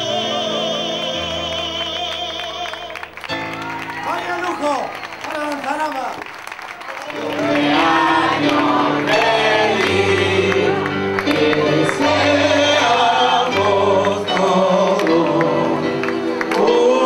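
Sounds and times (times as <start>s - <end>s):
voices singing together: 0.0s - 3.2s, 7.1s - 17.0s.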